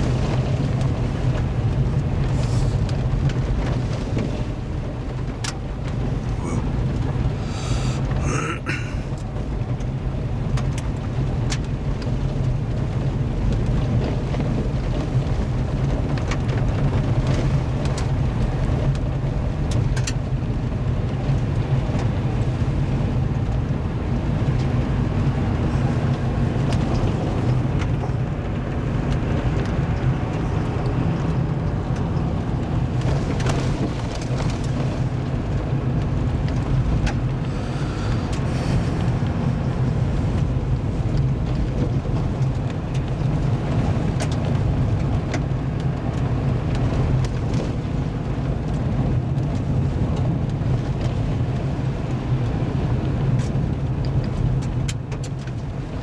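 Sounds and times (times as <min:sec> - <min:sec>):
vehicle driving on gravel: 0:00.0 - 0:56.0.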